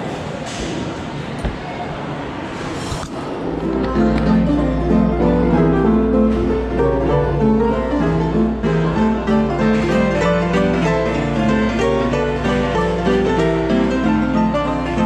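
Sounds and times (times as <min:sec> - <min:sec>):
strings and piano music: 0:03.5 - 0:15.0.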